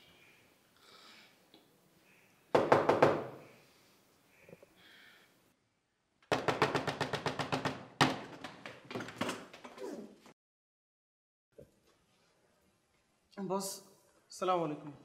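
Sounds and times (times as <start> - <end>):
rapid knocking: 6.3 - 8.6.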